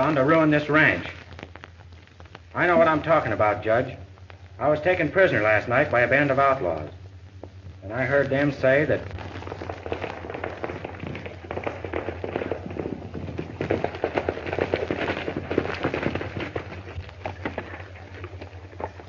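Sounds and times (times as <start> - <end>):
steady low hum: 0.0 - 19.0
hoofbeats on hard ground: 9.4 - 19.0.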